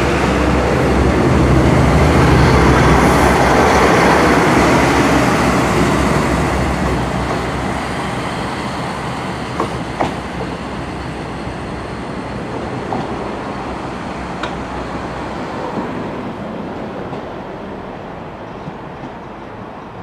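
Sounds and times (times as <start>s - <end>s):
diesel train running noise: 0.0s - 20.0s
train wheel clicks on track: 9.6s - 10.6s, 14.4s - 14.7s.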